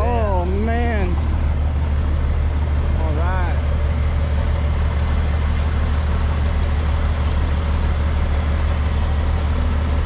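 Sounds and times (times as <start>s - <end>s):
engine running: 0.0s - 10.0s.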